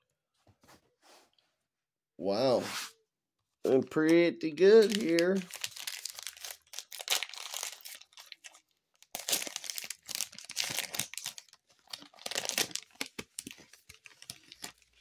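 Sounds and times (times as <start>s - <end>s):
foil wrapper crinkling and tearing: 4.8s - 15.0s.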